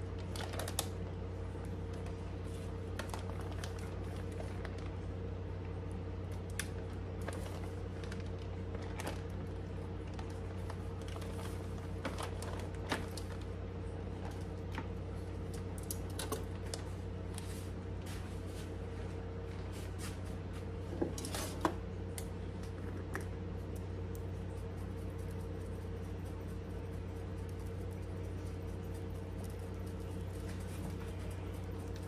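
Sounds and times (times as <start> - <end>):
steady low hum: 0.0 - 32.0
plastic bag crinkling: 0.1 - 1.0, 3.0 - 5.1, 6.5 - 14.9.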